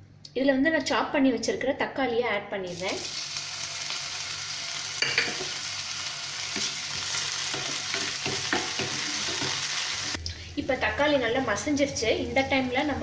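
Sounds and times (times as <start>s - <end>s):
tomatoes sizzling in hot oil: 2.7s - 10.2s.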